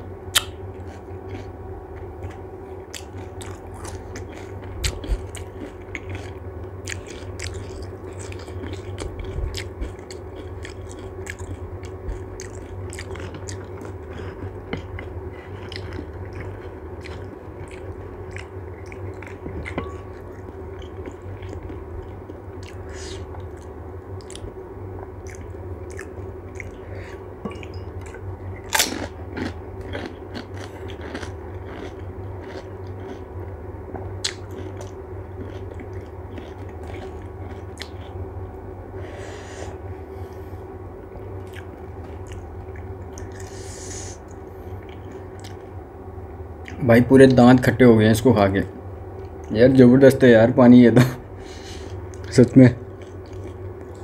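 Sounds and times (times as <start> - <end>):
crunching and chewing crisp food: 0.3 - 45.8, 46.6 - 47.7, 51.4 - 54.0.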